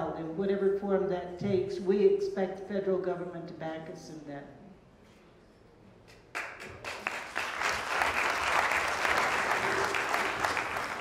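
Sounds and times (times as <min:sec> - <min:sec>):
audience applauding: 0:06.3 - 0:11.0.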